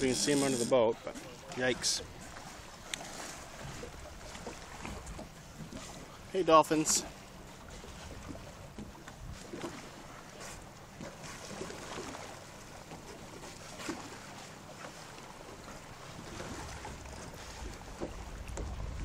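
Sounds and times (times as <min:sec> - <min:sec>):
water sloshing around a boat: 0:00.0 - 0:19.0
wind on microphone: 0:16.2 - 0:19.0.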